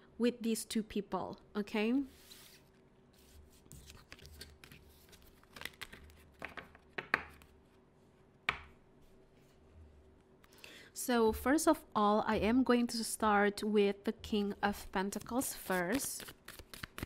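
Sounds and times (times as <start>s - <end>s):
cards tapping and sliding on table: 5.5s - 7.5s.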